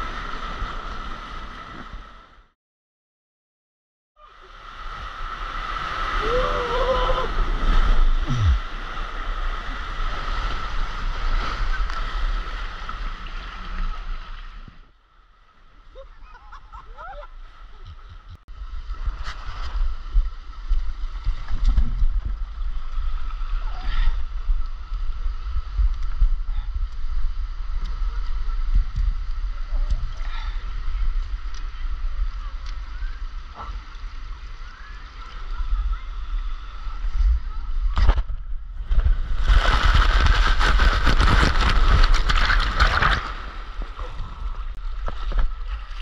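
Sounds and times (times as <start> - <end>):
water rushing and sloshing: 4.3 - 17.8, 18.5 - 46.0
wind on microphone: 17.8 - 34.5, 35.3 - 46.0.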